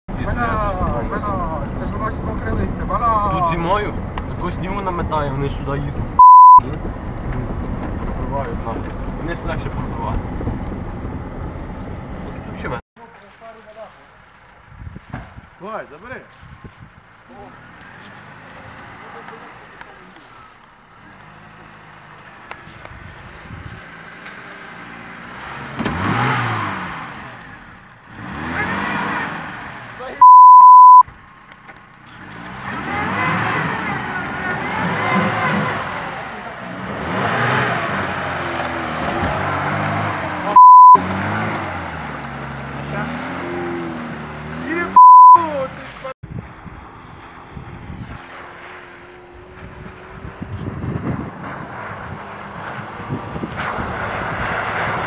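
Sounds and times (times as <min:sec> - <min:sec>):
censor bleep: 0:06.2 - 0:06.6, 0:30.2 - 0:31.1, 0:40.6 - 0:41.0, 0:45.0 - 0:45.4
wind on microphone: 0:14.6 - 0:15.6, 0:16.4 - 0:17.1, 0:22.7 - 0:23.9, 0:49.3 - 0:55.0
car engine revving in mud: 0:17.5 - 0:19.8, 0:23.3 - 0:31.0, 0:32.0 - 0:46.1, 0:47.8 - 0:55.0.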